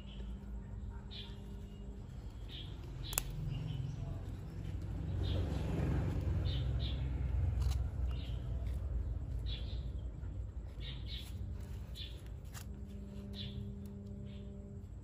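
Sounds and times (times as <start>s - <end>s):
small bird chirping: 0.0s - 14.9s
faint steady hum: 0.0s - 15.0s.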